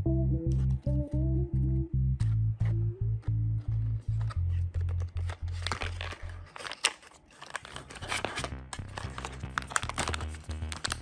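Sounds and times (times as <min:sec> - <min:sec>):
plastic bag crinkling: 0:04.3 - 0:11.0.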